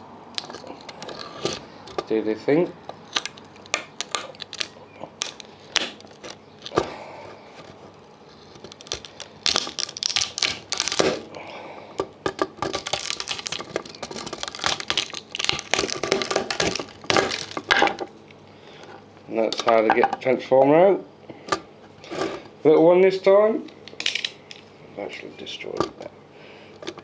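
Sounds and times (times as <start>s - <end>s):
plastic and pins cracking off board: 3.0s - 7.0s, 8.4s - 11.3s, 12.0s - 18.1s.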